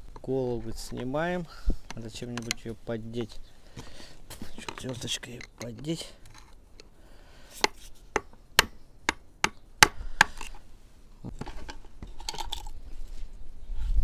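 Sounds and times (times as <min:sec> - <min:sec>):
handling of parts: 0:00.2 - 0:06.9, 0:10.2 - 0:10.7, 0:11.3 - 0:12.8.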